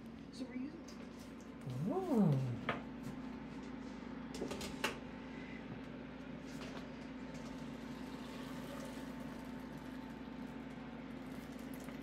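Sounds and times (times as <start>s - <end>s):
low hum: 0.8s - 4.4s.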